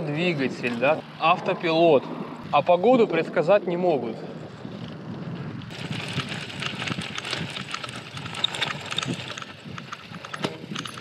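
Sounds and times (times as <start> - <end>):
bike clicks and rattles: 0.0 - 1.2, 4.2 - 11.0
bike crunching over rough ground: 0.0 - 11.0.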